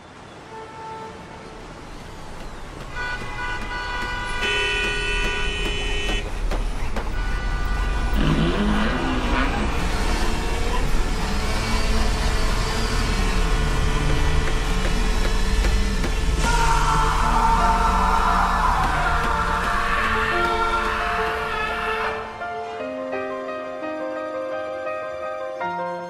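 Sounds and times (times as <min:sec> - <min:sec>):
car engines running: 0:01.9 - 0:16.6
car horns honking: 0:02.8 - 0:16.4.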